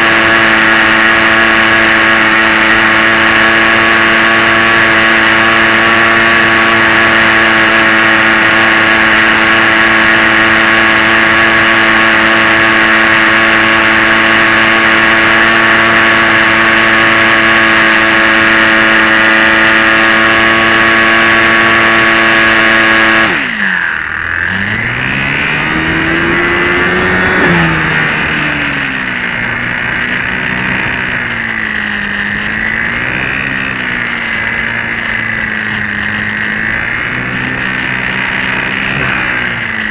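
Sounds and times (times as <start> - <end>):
model plane motor whining: 0.0 - 39.9.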